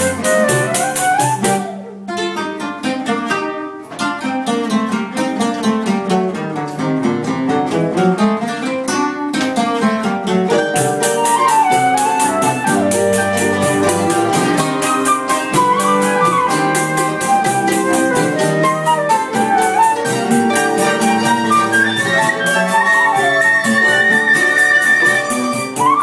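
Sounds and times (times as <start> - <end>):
quick percussive pulse: 0.0 - 1.9, 10.6 - 26.0
flute melody: 0.0 - 2.6, 10.6 - 26.0
acoustic guitar accompaniment: 0.0 - 26.0.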